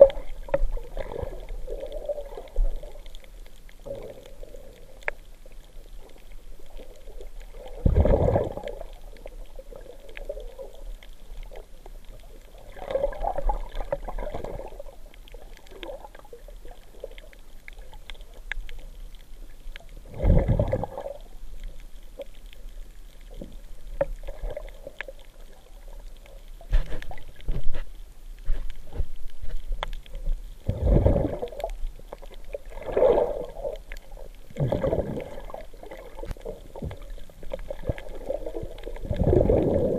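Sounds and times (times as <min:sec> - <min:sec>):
underwater sloshing and gurgling: 0:00.0 - 0:39.9
water surges: 0:00.0 - 0:39.9
small clicks: 0:01.4 - 0:07.5, 0:08.6 - 0:20.0.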